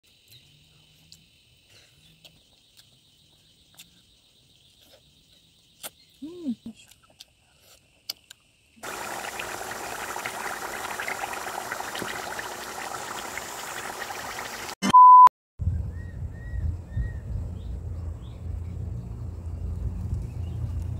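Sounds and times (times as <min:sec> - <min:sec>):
curry sizzling in a pan: 0:08.8 - 0:14.8
short loud beep: 0:14.8 - 0:15.3.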